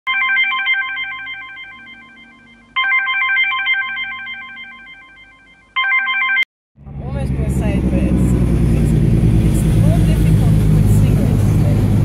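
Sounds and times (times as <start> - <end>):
phone alarm ringtone: 0.1 - 6.5.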